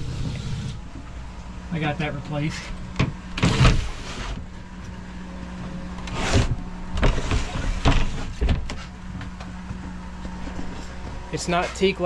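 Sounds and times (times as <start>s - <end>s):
steady low hum: 0.0s - 12.0s
sliding hatch scraping: 2.5s - 4.5s, 6.0s - 9.0s.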